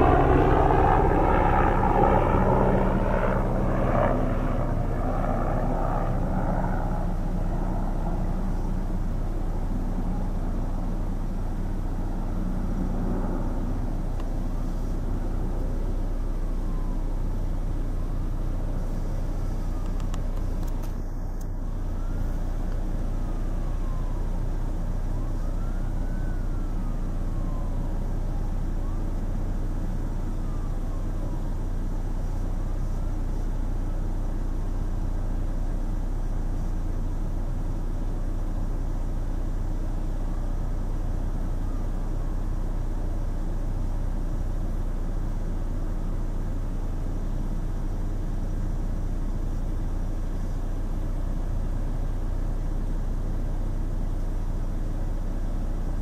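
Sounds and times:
faint rising and falling tone: 0.0 - 29.1
distant road traffic rumble: 0.0 - 56.0.

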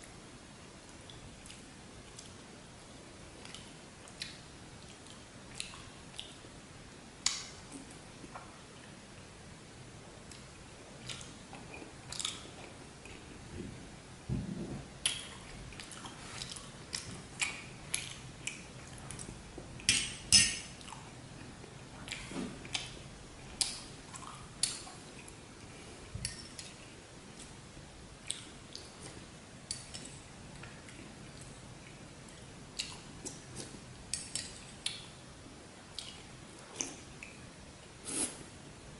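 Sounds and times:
chewing and wet mouth sounds: 0.9 - 2.5, 3.4 - 6.4, 10.2 - 13.6, 15.0 - 27.6, 28.2 - 35.1, 35.9 - 37.4.

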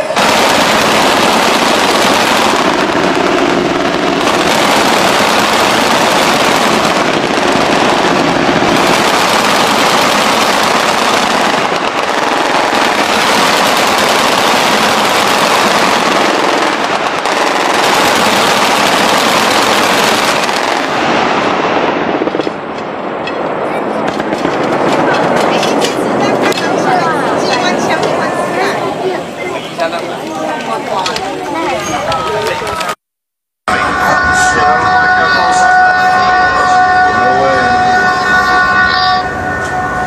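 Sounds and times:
machine-gun fire: 0.1 - 23.0.

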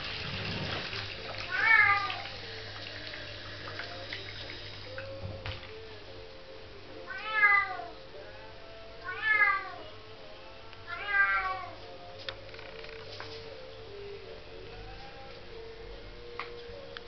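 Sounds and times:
cat meowing: 1.5 - 2.3, 7.1 - 7.9, 9.0 - 9.8, 10.9 - 11.8.

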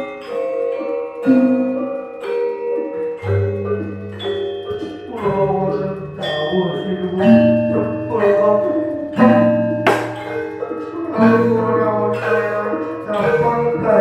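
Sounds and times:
gamelan playing: 0.0 - 14.0
sharp knock: 9.8 - 10.4.

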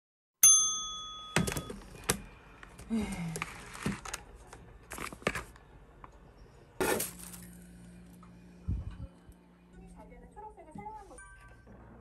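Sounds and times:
objects rustling and clattering: 1.4 - 5.6, 6.8 - 8.1
steady low hum: 5.7 - 11.0.

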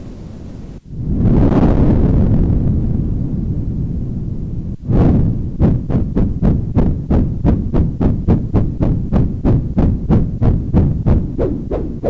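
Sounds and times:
deep noise thuds: 4.8 - 12.0.

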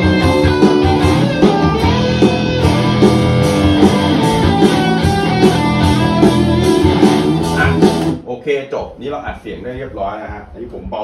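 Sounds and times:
electric guitar: 0.0 - 8.2
rock backing track with drums: 0.0 - 8.3.

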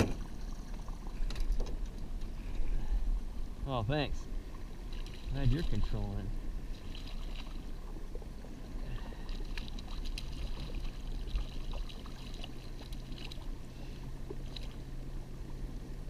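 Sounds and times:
outboard motor humming: 0.0 - 16.0
fish splashing in water: 6.7 - 8.1, 8.8 - 13.6.

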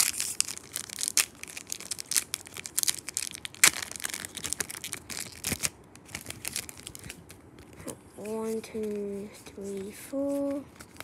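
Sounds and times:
foil wrapper crinkling and tearing: 0.0 - 7.8, 10.3 - 11.0.

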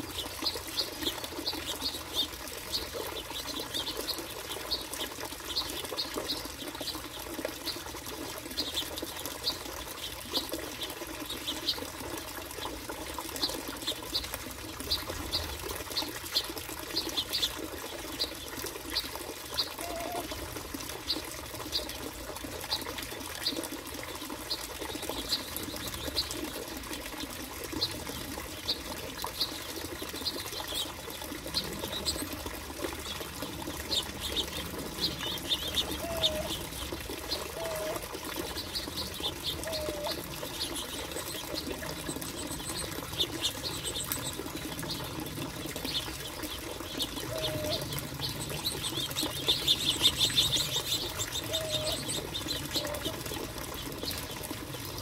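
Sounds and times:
finches chirping: 45.8 - 53.2.

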